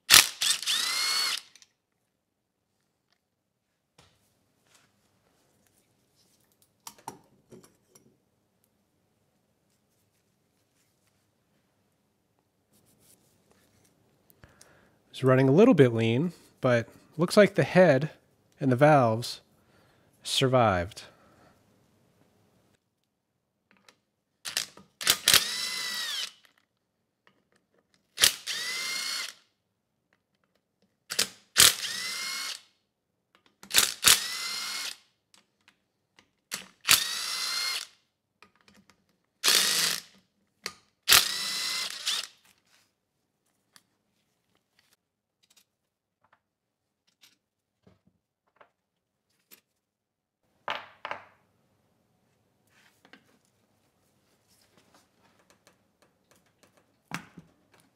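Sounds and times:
cordless driver whining: 0:00.1 - 0:01.7, 0:25.0 - 0:26.4, 0:28.2 - 0:29.4, 0:33.8 - 0:35.0, 0:36.9 - 0:37.9, 0:41.1 - 0:42.4.

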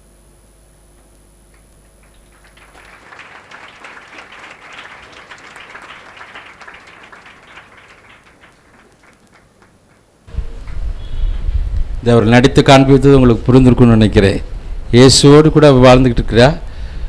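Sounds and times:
audience clapping: 0:01.5 - 0:10.9.

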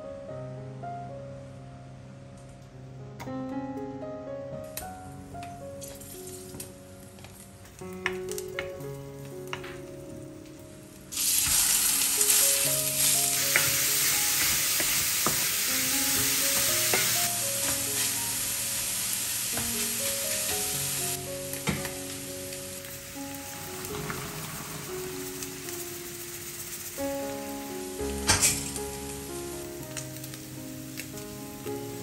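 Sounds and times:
soft background music: 0:00.0 - 0:32.0
meat sizzling in a pan: 0:11.1 - 0:32.0.

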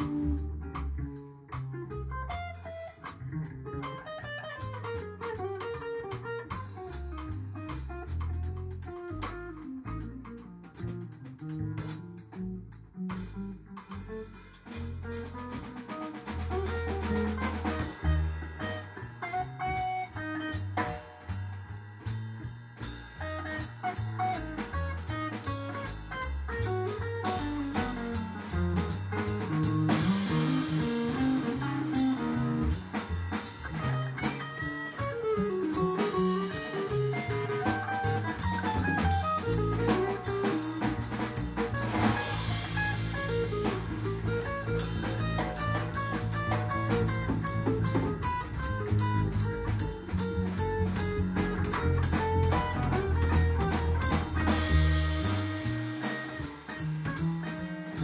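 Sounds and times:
drum kit keeping time: 0:00.0 - 0:58.0
upright bass: 0:00.0 - 0:58.0
electric guitar solo: 0:33.6 - 0:40.5.

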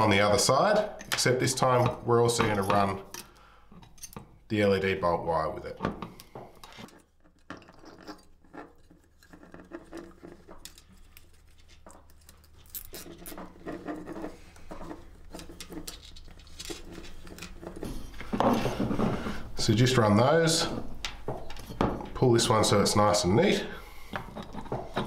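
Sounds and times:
cables rustling: 0:06.0 - 0:25.0.

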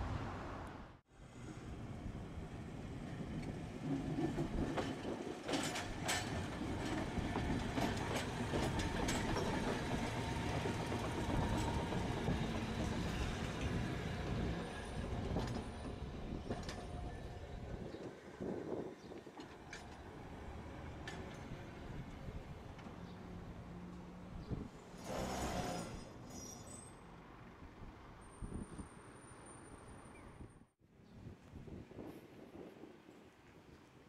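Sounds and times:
streetcar rumbling on rails: 0:00.0 - 0:30.4.

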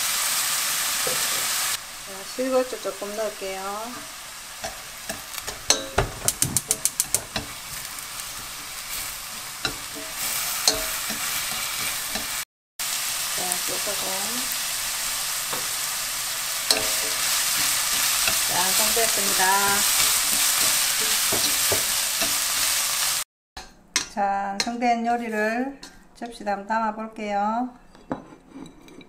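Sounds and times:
root sizzling in frying pan: 0:00.0 - 0:23.3
chopsticks tapping a pan: 0:04.0 - 0:08.6, 0:09.6 - 0:12.4, 0:15.5 - 0:15.8, 0:16.6 - 0:22.8.

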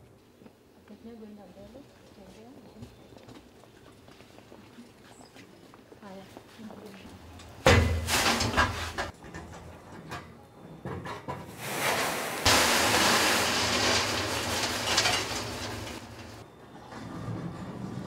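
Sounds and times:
material pouring into hopper: 0:11.6 - 0:16.4
machinery hum: 0:12.5 - 0:16.4.

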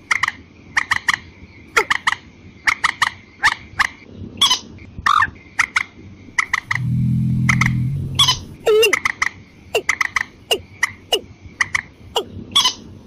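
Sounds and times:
birds clucking calls: 0:06.3 - 0:12.8.

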